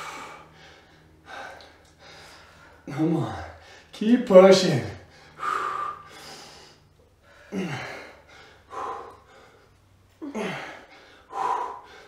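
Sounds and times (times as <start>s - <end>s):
person grunting with effort: 10.2s - 10.8s.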